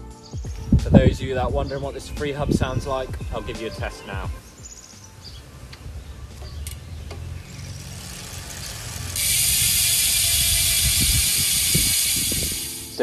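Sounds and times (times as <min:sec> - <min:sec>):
bicycle freehub clicking: 0:05.7 - 0:13.0.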